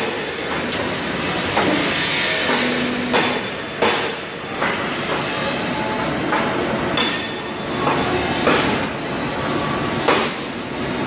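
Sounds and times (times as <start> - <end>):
sharp metallic knocks: 1.5 - 5.3, 6.3 - 8.8.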